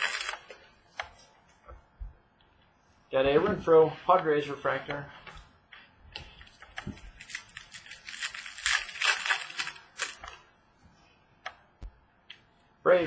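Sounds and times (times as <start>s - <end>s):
wrapper tearing and crinkling: 0.0s - 0.4s, 7.0s - 10.4s
cards being handled: 0.0s - 1.4s, 6.2s - 10.4s.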